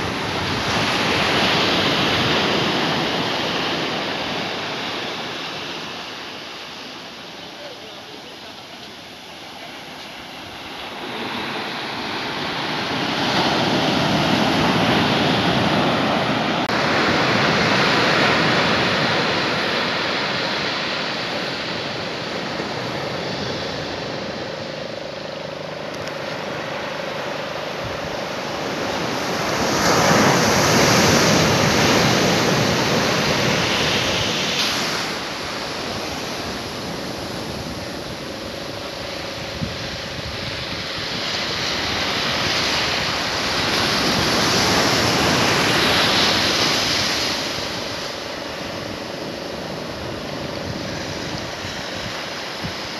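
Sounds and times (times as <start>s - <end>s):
surf washing onto sandy beach: 0.0s - 52.9s.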